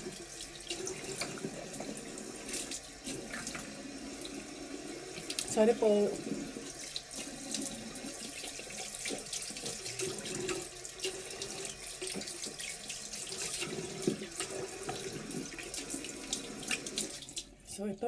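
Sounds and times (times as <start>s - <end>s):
tap running into sink: 0.0s - 4.4s, 8.3s - 17.4s.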